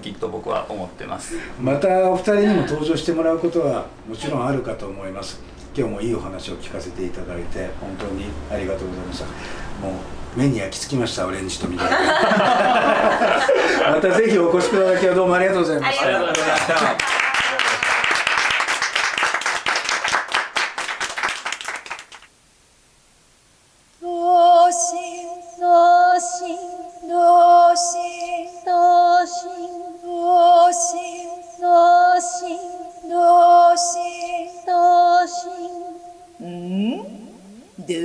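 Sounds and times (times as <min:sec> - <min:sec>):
small group clapping: 0:16.2 - 0:22.3.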